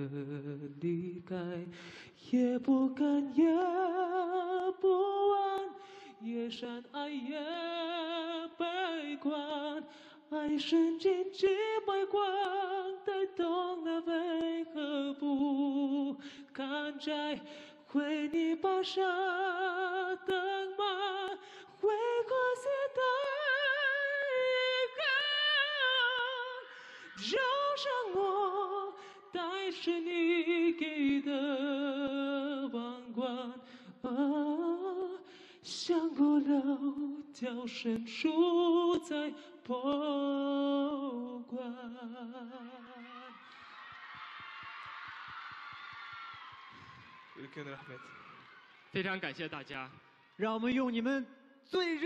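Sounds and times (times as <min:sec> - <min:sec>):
man singing unaccompanied: 0:00.0 - 0:43.0, 0:51.7 - 0:52.0
short breaths: 0:01.7 - 0:02.2, 0:05.8 - 0:06.2, 0:09.9 - 0:10.2, 0:16.2 - 0:16.5, 0:17.4 - 0:17.9, 0:21.4 - 0:21.8, 0:26.6 - 0:27.2, 0:33.6 - 0:34.0, 0:35.2 - 0:35.6.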